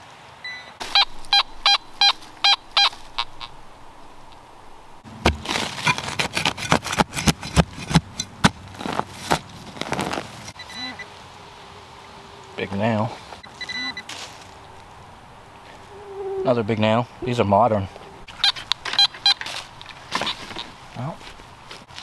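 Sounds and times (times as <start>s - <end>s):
metal detector beeping: 0.5s - 3.6s, 13.4s - 14.1s, 18.3s - 19.5s
hand digger chopping soil: 5.2s - 10.3s.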